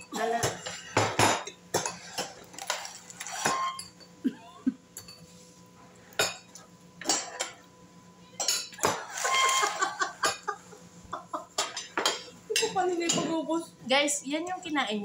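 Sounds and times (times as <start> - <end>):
cutlery clinking on bowls: 0.0 - 4.2, 5.0 - 5.3, 6.1 - 7.7, 8.4 - 10.5, 11.5 - 13.4.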